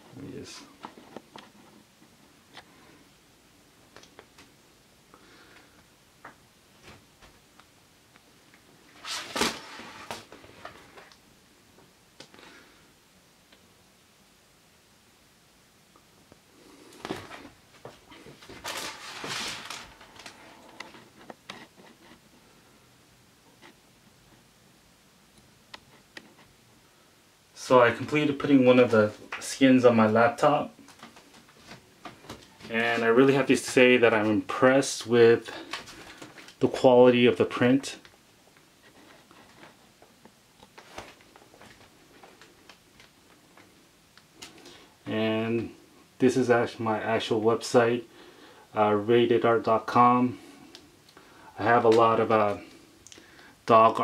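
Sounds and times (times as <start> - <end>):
paper rustle: 9.0 - 11.1, 17.0 - 22.2.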